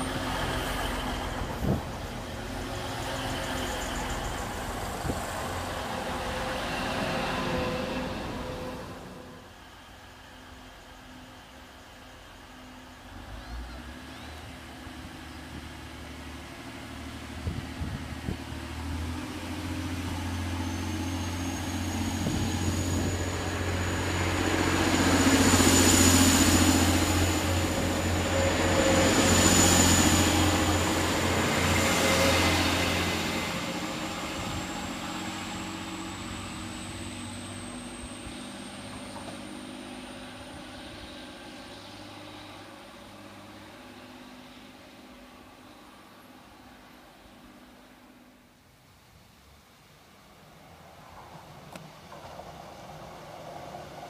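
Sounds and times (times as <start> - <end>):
diesel train engines droning: 0.0 - 48.5
wheel-on-rail noise: 50.5 - 54.0.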